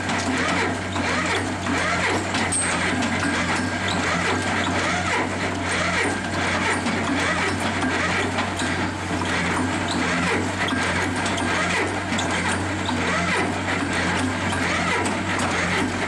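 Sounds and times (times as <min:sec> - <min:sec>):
diesel engines running: 0:00.0 - 0:16.0
machinery rattling and clattering: 0:00.0 - 0:16.0.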